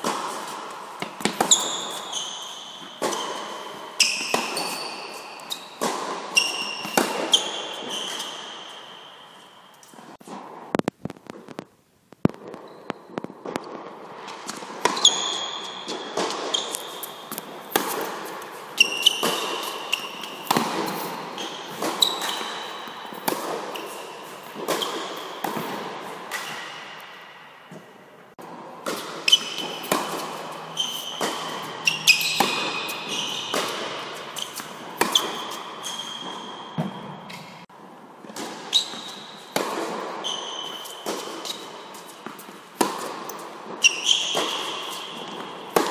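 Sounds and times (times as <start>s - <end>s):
tennis ball bounces: 0.0s - 2.2s, 2.8s - 4.8s, 5.4s - 8.4s, 14.5s - 27.9s, 28.8s - 37.5s, 38.3s - 45.9s
tennis racket hits: 0.0s - 9.2s, 13.4s - 37.7s, 38.3s - 45.9s
shoe squeaks on court: 1.2s - 9.9s, 12.5s - 13.3s, 14.8s - 18.1s, 18.8s - 25.4s, 29.2s - 37.6s, 38.7s - 39.4s, 40.2s - 42.2s, 43.8s - 45.7s.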